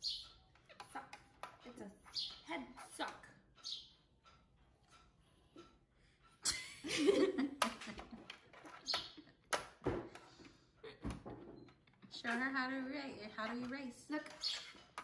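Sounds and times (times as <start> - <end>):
woman laughing: 6.4 - 8.3.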